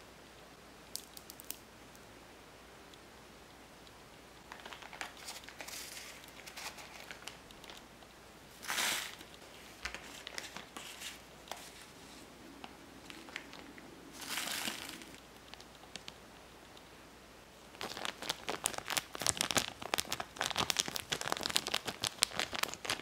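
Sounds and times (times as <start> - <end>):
plastic bag crinkling: 4.4 - 7.9, 8.5 - 16.2, 17.7 - 23.0.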